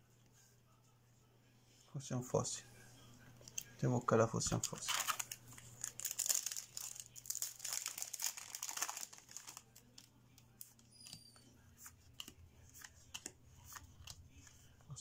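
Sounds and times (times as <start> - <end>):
foil pack crinkling: 4.5 - 10.1.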